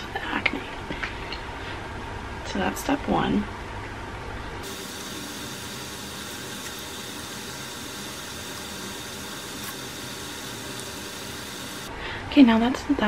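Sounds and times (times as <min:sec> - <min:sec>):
room noise hiss: 0:04.2 - 0:12.5.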